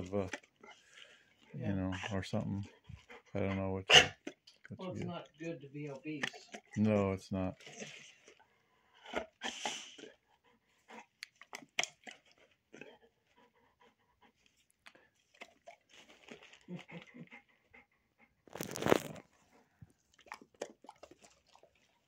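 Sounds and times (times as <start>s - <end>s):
dog panting: 0.0s - 22.0s
dog mouth clicks and smacks: 6.0s - 6.8s, 11.2s - 12.4s, 20.1s - 22.0s.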